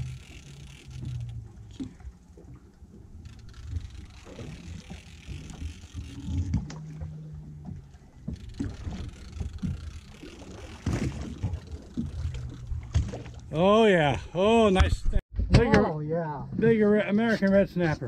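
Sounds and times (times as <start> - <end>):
low hum: 0.0 - 14.4
water against boat hull: 0.0 - 15.0
wind: 0.0 - 18.0.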